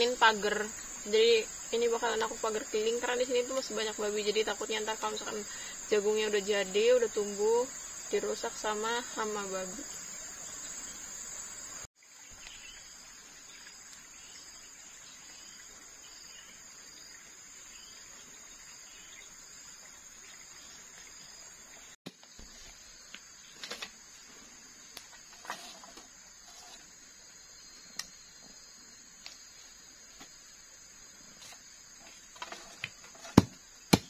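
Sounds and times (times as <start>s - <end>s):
insects chirring: 0.0s - 34.0s.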